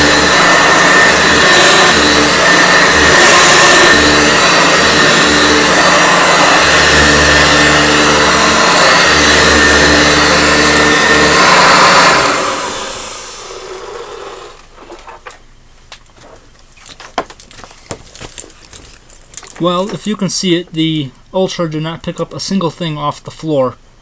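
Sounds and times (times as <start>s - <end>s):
motor winding down: 0.0s - 14.7s
vacuum cleaner running: 0.0s - 15.1s.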